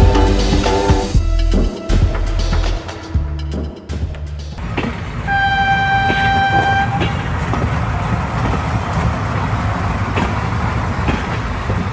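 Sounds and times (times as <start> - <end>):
horn steady note: 0.0 - 3.4, 5.3 - 7.3.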